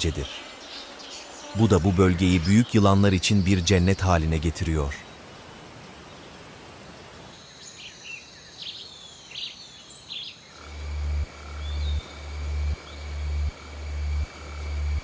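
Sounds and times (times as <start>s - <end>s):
high insect tones: 0.0s - 4.8s, 10.2s - 15.0s.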